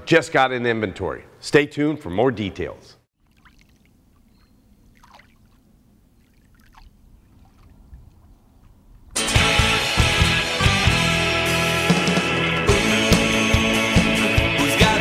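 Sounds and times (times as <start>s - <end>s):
water lapping: 3.2s - 9.0s
loud rock music with guitar: 9.2s - 15.0s.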